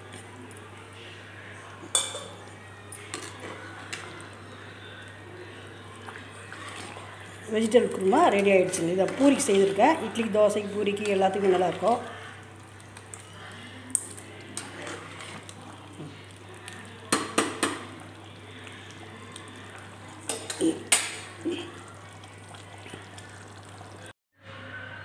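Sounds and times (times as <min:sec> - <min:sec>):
metal ladle clinking on pot: 0:01.9 - 0:02.3.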